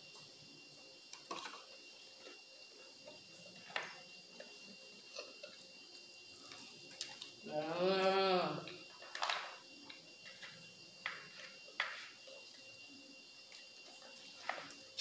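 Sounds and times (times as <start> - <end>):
soft chewing sounds: 0.0 - 7.4, 8.6 - 15.0.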